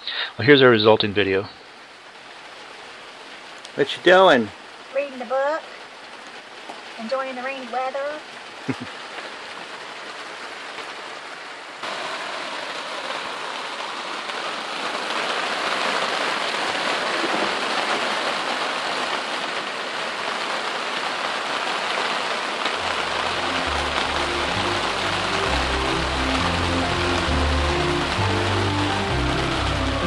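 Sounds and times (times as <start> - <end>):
rain on canvas: 0.0 - 30.0
music with bass line: 22.8 - 30.0.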